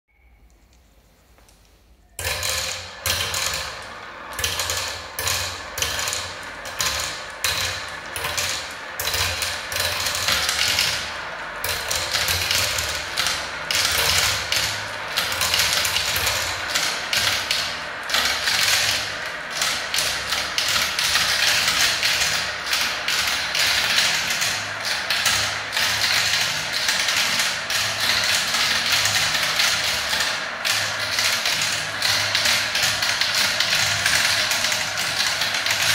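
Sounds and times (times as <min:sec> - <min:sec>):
plastic balls rattling in marble run: 0:02.2 - 0:35.9.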